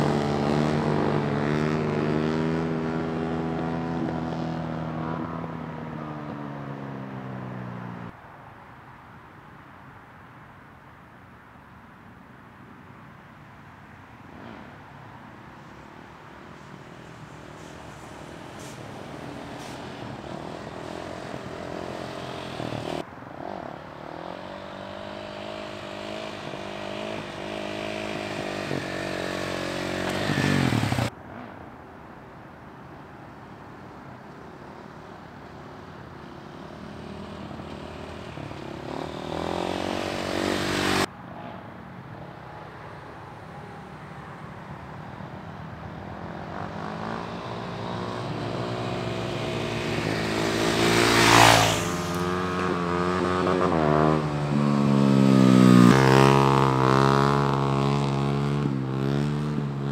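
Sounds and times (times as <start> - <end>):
dirt bike engine revving: 24.0 - 31.1, 36.9 - 41.1, 46.6 - 59.9.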